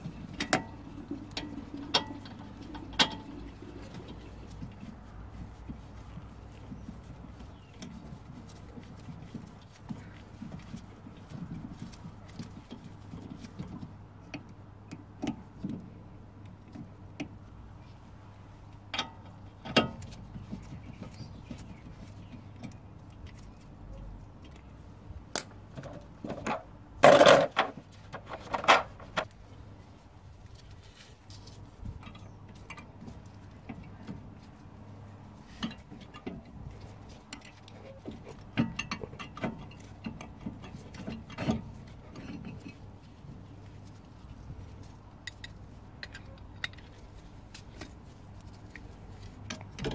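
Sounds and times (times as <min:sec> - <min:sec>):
rattling clatter: 0:25.8 - 0:29.3.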